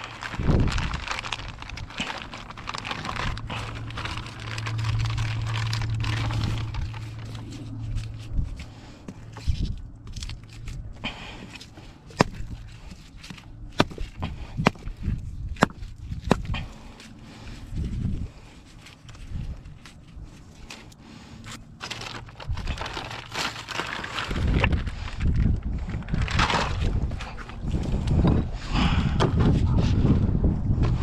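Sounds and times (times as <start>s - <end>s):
plastic bag crinkling: 0.0s - 14.1s, 21.5s - 27.7s
low steady hum: 0.0s - 31.0s.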